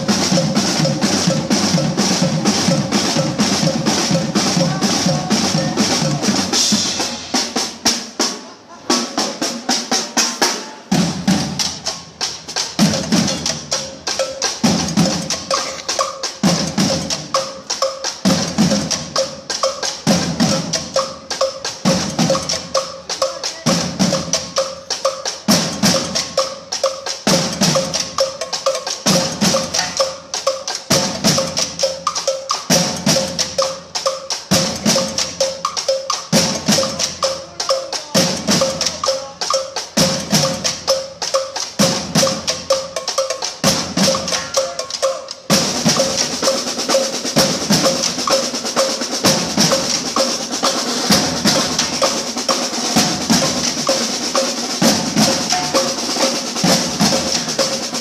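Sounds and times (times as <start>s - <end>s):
heavy low drum accent: 0.0s - 7.9s, 43.6s - 58.0s
drum ensemble playing fast rhythm: 0.0s - 58.0s.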